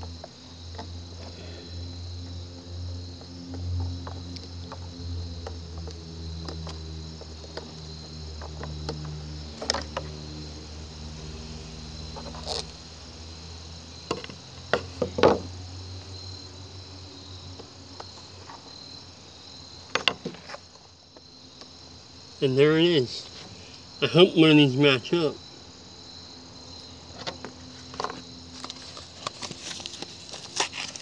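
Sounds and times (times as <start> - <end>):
insects chirping: 0.0 - 31.0.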